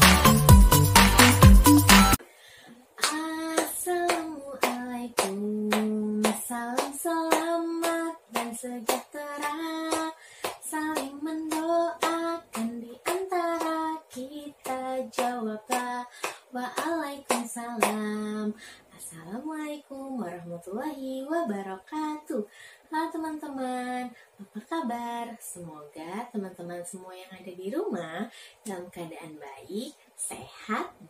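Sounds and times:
electronic music: 0.0 - 2.2
hand clapping: 3.0 - 13.8, 14.6 - 18.1
woman singing unaccompanied: 3.0 - 30.9.

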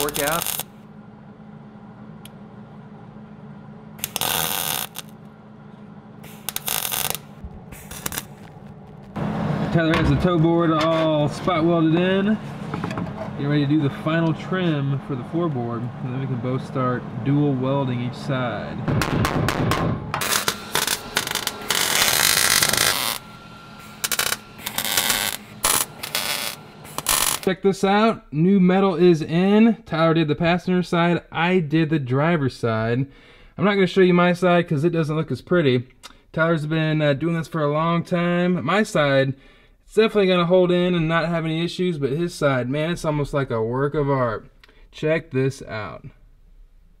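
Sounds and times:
welding arc crackle: 0.0 - 0.8, 4.0 - 5.3, 6.2 - 9.2, 19.0 - 27.5
steady low hum: 0.0 - 47.0
short welding pops: 6.2 - 9.2, 18.9 - 23.2.

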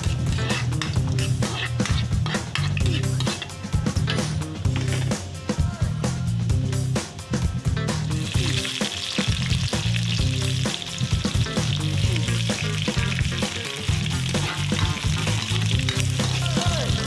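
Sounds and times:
background music: 0.0 - 17.0
vegetables sizzling in a wok: 8.2 - 17.0.

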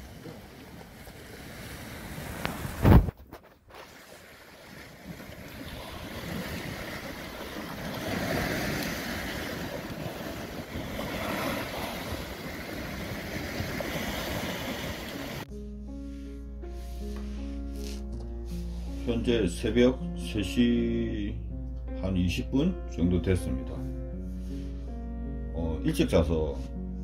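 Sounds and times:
waves breaking on rocky shore: 0.0 - 15.5
wind on microphone: 1.6 - 3.6.

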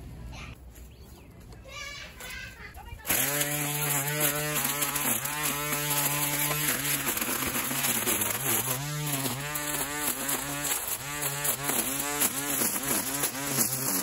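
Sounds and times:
string trimmer cutting brush: 3.0 - 14.0.

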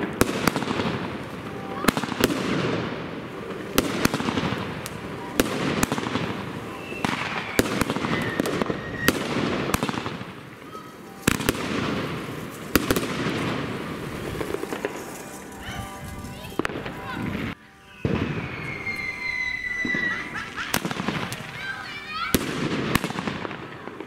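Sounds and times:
firework bangs: 0.0 - 24.0
hiss of falling firework burst: 3.7 - 15.2.

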